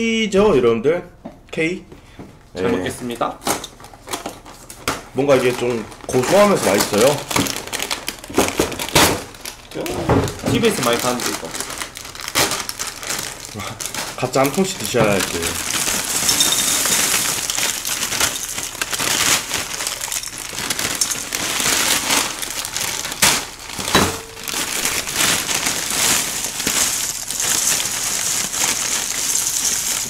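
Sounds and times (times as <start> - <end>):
plastic bag crinkling: 3.5 - 30.0
cereal rattling into glass bowls: 5.4 - 7.8, 14.1 - 30.0.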